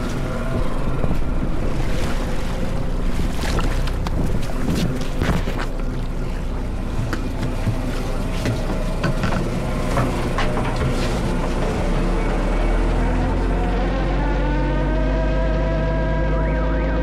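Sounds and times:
boat engine humming: 0:00.0 - 0:17.0
knocks and clicks: 0:07.0 - 0:11.8.

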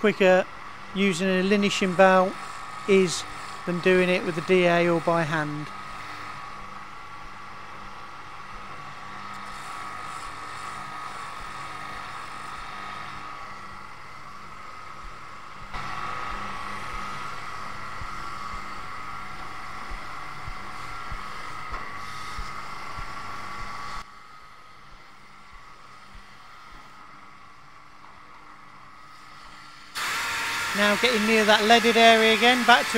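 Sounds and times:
abrasive belt whining: 0:30.0 - 0:32.9.

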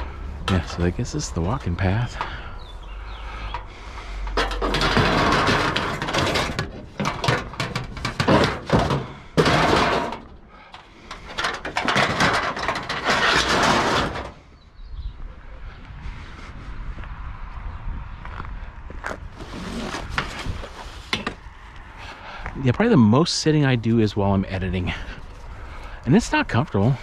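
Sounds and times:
scrap scraping and rattling: 0:00.0 - 0:02.5, 0:03.2 - 0:14.6, 0:19.4 - 0:21.5.

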